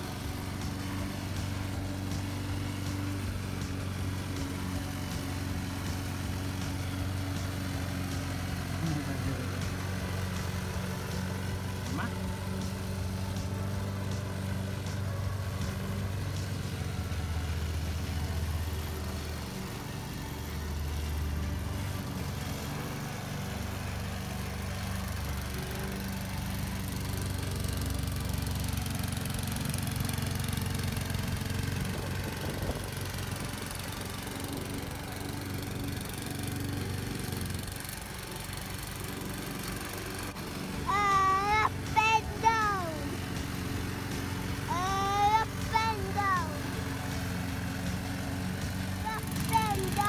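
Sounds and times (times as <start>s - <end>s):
lawn mower running: 0.0s - 50.0s.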